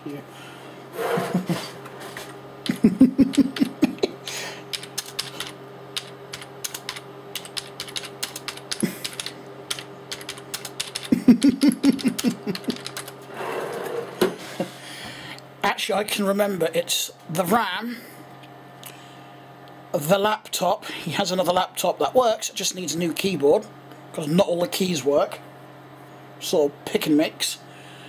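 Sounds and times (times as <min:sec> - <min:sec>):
low electrical hum: 0:00.0 - 0:28.0
keyboard typing clicks: 0:04.7 - 0:13.1.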